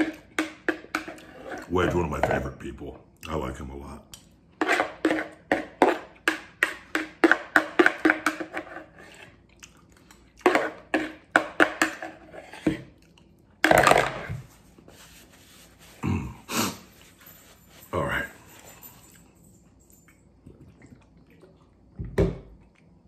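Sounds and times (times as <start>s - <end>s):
spoon scraping plastic bowl: 0.0s - 2.5s, 4.6s - 9.4s, 10.4s - 12.9s
paper napkin rustling: 14.4s - 16.0s.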